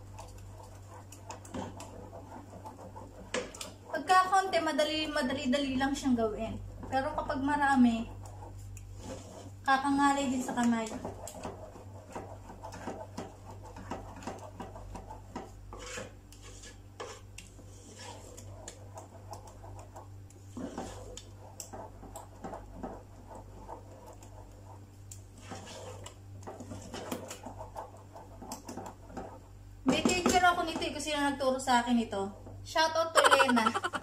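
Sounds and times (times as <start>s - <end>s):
wooden spoon scraping metal pot: 0.0s - 31.1s
steady low hum: 0.0s - 34.0s.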